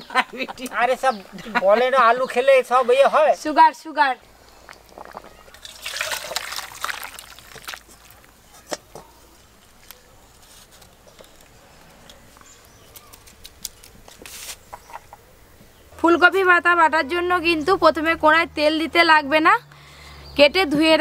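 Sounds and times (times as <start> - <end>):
curry splashing into a bowl: 5.0 - 9.0.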